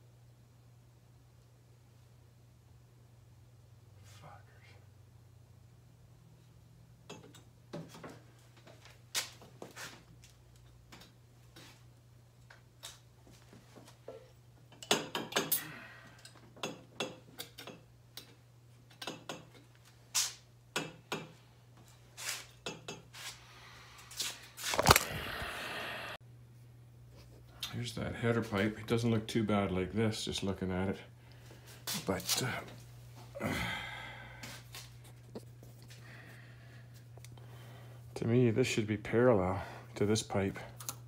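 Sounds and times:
steady low hum: 0:23.3 - 0:41.0.

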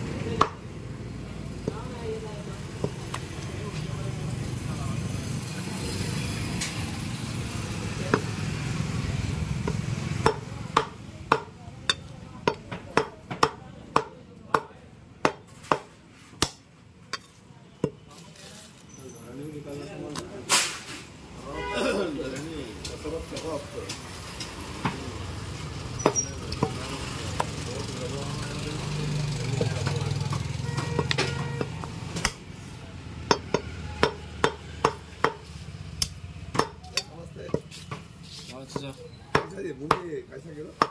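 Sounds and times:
cleaver chopping meat: 0:00.4 - 0:00.6, 0:08.1 - 0:08.5, 0:09.6 - 0:16.6, 0:26.0 - 0:27.7, 0:28.9 - 0:32.4, 0:33.2 - 0:40.1.

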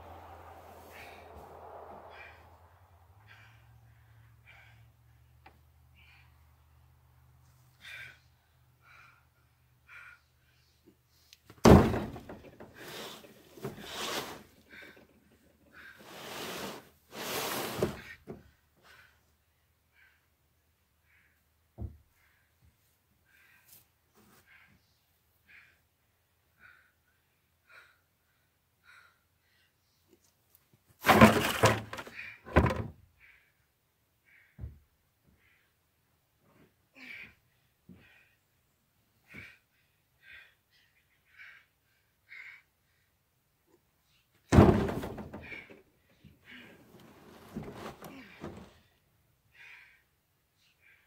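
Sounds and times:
hay bale thump on truck bed: 0:11.6 - 0:12.7, 0:31.0 - 0:32.9, 0:44.5 - 0:45.7
hay bale scraping across bed: 0:12.8 - 0:14.5, 0:16.0 - 0:18.0, 0:46.8 - 0:48.8
hay bale thumping: 0:44.5 - 0:45.6, 0:47.0 - 0:48.8.

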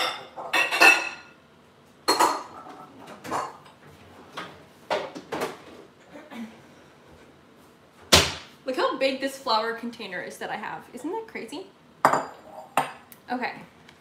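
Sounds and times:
dishes clinking and clattering: 0:00.0 - 0:01.4, 0:02.0 - 0:05.6, 0:12.0 - 0:13.1.

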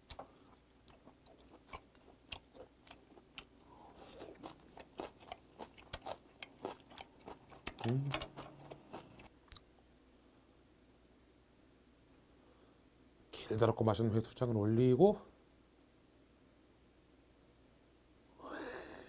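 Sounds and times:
person humming: 0:07.8 - 0:08.9.

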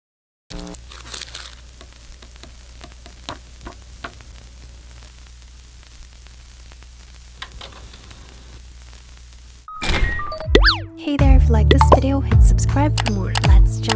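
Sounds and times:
crackles and sharp clicks: 0:00.5 - 0:09.7.

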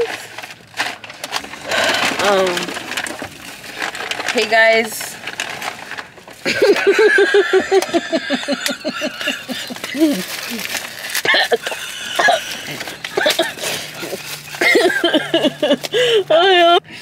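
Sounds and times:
women laughing: 0:06.4 - 0:16.8.

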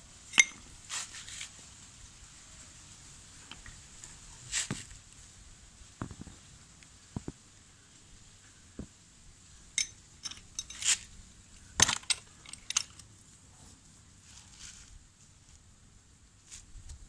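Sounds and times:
metal tools clinking: 0:00.3 - 0:01.4, 0:09.8 - 0:11.1, 0:11.8 - 0:13.1.

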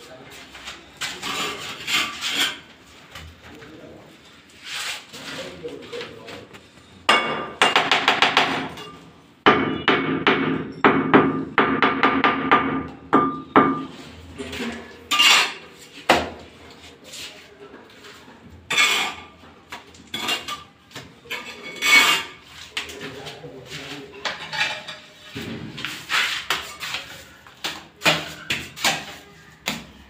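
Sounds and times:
trowel strokes: 0:25.8 - 0:27.4.

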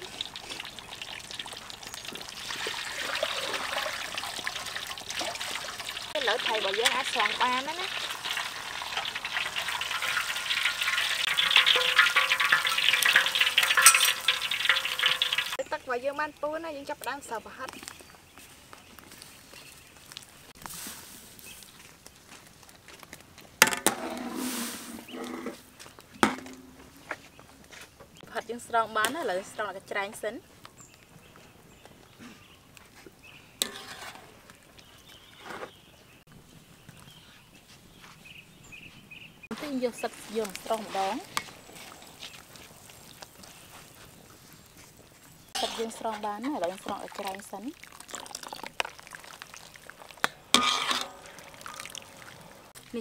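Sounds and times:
water splashing: 0:00.0 - 0:15.6, 0:45.6 - 0:53.0
oil sizzling and crackling: 0:00.0 - 0:15.8, 0:19.0 - 0:27.1, 0:33.2 - 0:35.3, 0:39.4 - 0:53.0
strainer scraping wok: 0:05.2 - 0:15.6, 0:23.7 - 0:25.7, 0:33.6 - 0:34.4, 0:45.6 - 0:47.0, 0:50.5 - 0:52.0
sharp metal clink: 0:11.5 - 0:15.4.

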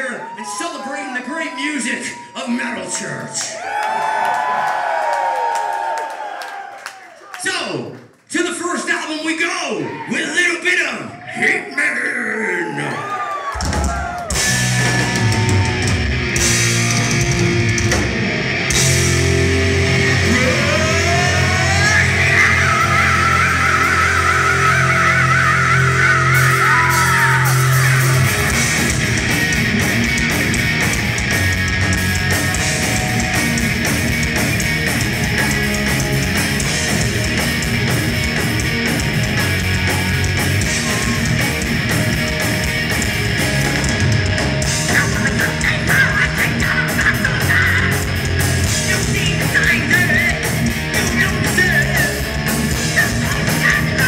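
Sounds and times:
heavy metal band playing live: 0:13.6 - 0:54.0.

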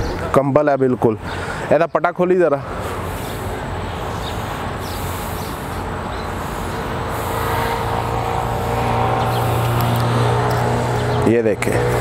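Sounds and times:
engine running steadily: 0:02.6 - 0:12.0.

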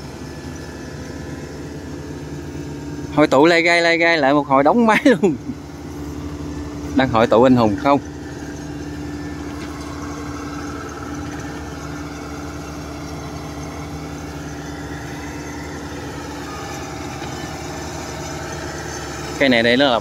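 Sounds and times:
diesel engine running: 0:00.0 - 0:20.0
mechanical whine: 0:00.0 - 0:20.0.

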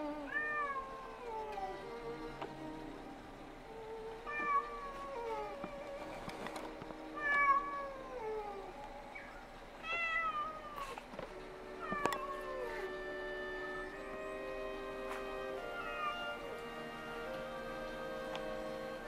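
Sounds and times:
kitten meowing: 0:15.8 - 0:16.4.

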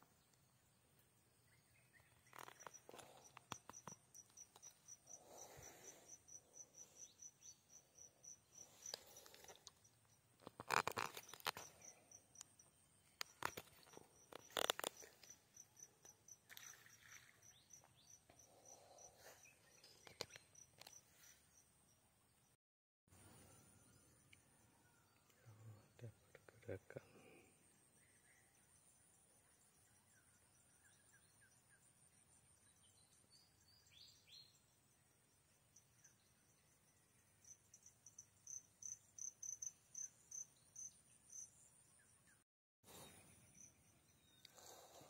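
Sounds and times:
high-pitched insect chirping: 0:02.3 - 0:18.4.

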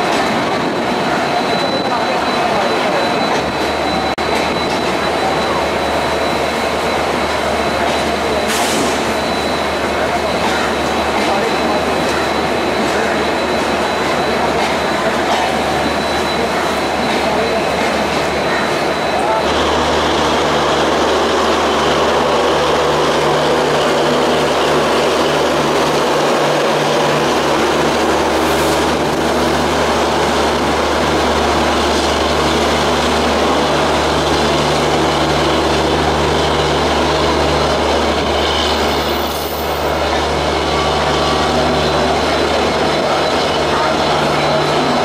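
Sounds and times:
diesel locomotive hum: 0:00.0 - 0:45.0
train wheels rumbling on rail: 0:00.0 - 0:45.0.

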